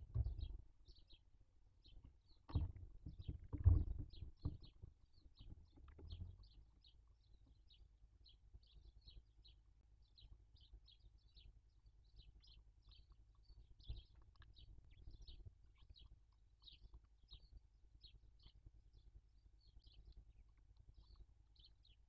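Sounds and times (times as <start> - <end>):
dull knock: 0.0 - 0.6, 2.5 - 4.8
owl chicks chirping: 4.7 - 22.0.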